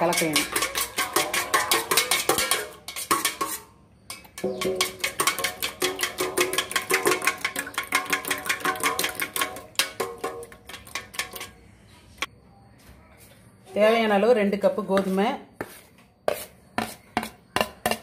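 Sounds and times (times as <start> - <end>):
spoon clinking in metal bowl: 0.0 - 11.5.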